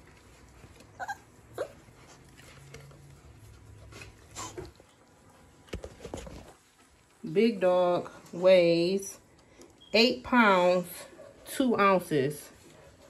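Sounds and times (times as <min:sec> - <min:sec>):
puppy whimpering: 0:00.8 - 0:02.3, 0:04.3 - 0:04.8.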